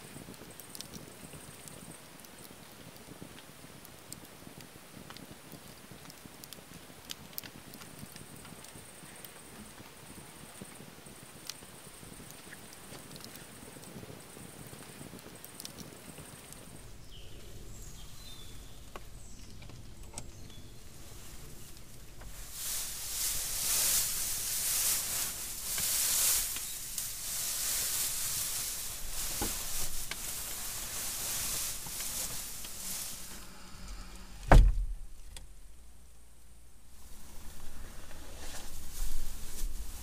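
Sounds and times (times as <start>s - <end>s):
dry hay rustling and crackling: 7.3s - 35.2s, 36.9s - 40.0s.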